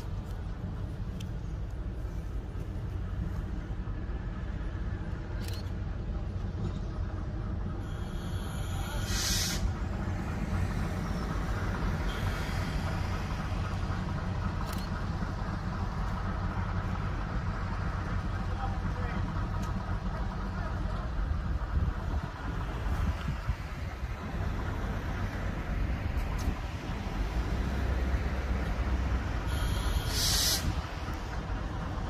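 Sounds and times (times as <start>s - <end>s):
diesel locomotive idling: 0.0s - 32.0s
air release hiss: 8.0s - 9.8s, 29.5s - 30.8s.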